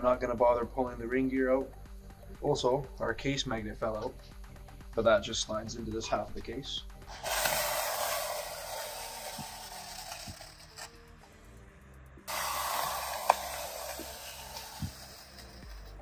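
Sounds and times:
squeegee scraping wet steel: 7.1 - 10.9, 12.3 - 16.0.

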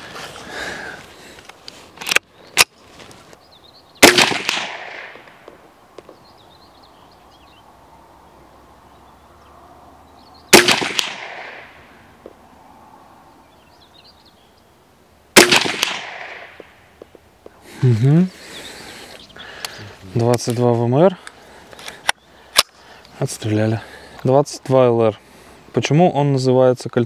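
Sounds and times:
rifle shots with echo: 4.0 - 5.4, 10.5 - 11.8, 15.4 - 16.6.

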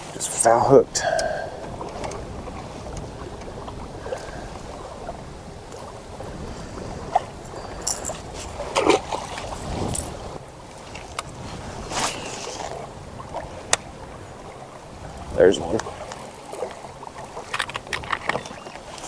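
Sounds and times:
water lapping against kayak hull: 0.0 - 19.0
wind on microphone: 0.0 - 19.0
fishing gear clicks and knocks: 7.1 - 10.2, 15.6 - 19.0.

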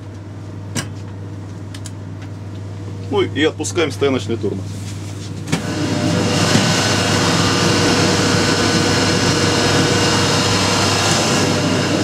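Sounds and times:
low hum of locomotive machinery: 0.0 - 12.0
compressed air rushing: 5.6 - 12.0.

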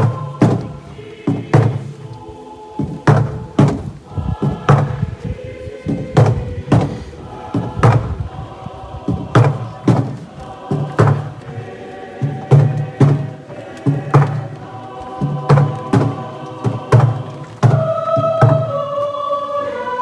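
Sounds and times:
choir singing: 0.0 - 20.0
percussion beat: 9.1 - 11.4, 12.2 - 14.6, 15.2 - 18.7.

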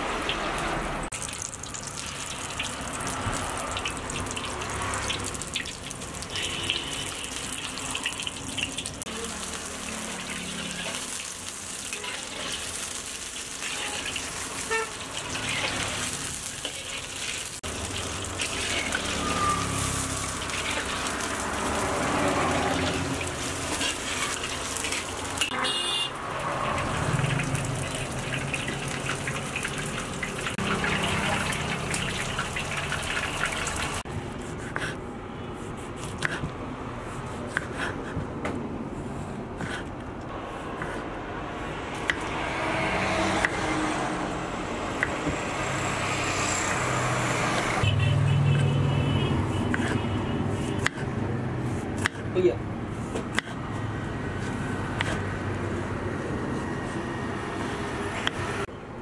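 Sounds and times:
chicken deep-frying in oil: 0.0 - 34.1
knife slicing on wooden board: 35.6 - 38.2, 40.6 - 41.1, 49.7 - 51.1.

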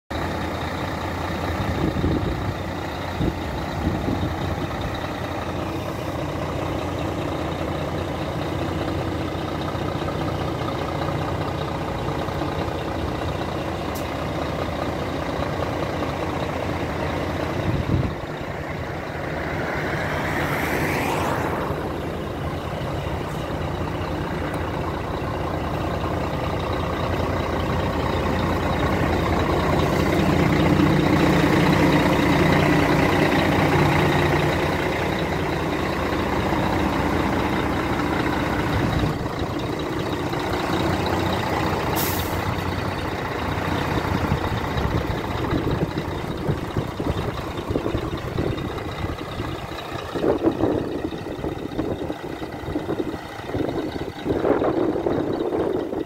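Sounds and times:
diesel engine idling: 0.1 - 56.0
whooshing sweep: 17.8 - 23.5.

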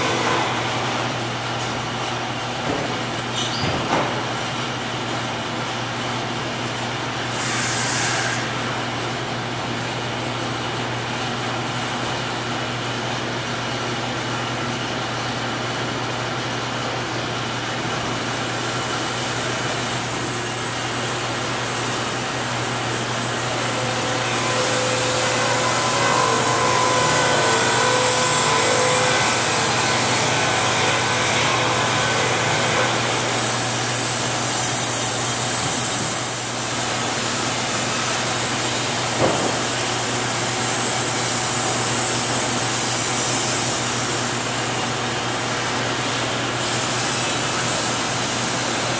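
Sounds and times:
sawmill motor hum: 0.0 - 3.2, 8.2 - 48.9
saw cutting hiss: 7.3 - 8.7, 19.0 - 45.0.

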